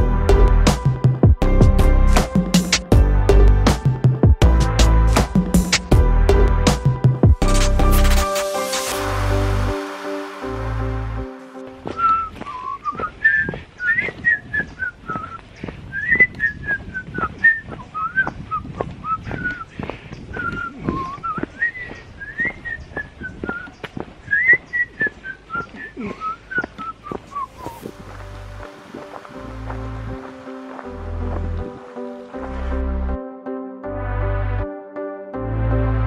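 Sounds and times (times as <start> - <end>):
crunching footsteps: 11.3 - 33.1
man whistling a tune: 11.8 - 19.7, 20.3 - 23.7, 24.3 - 27.9.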